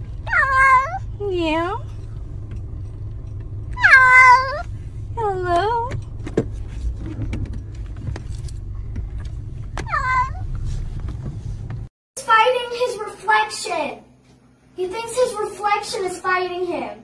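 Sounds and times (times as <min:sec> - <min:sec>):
low rumble: 0:00.0 - 0:11.9
cat meowing: 0:00.3 - 0:01.0, 0:03.8 - 0:04.7, 0:09.8 - 0:10.4.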